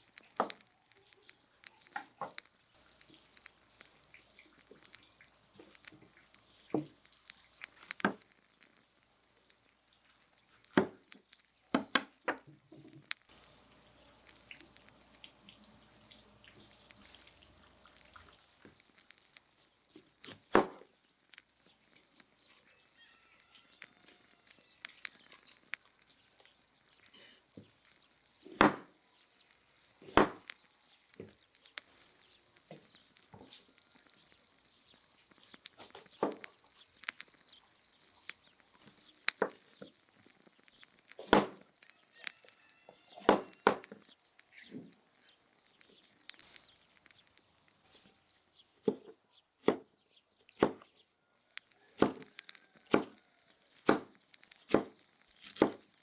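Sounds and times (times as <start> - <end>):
faint handling sounds: 0.0 - 49.2
knife chopping on wooden board: 30.0 - 30.4, 50.6 - 50.8, 52.0 - 52.3, 52.9 - 53.2, 54.7 - 55.0.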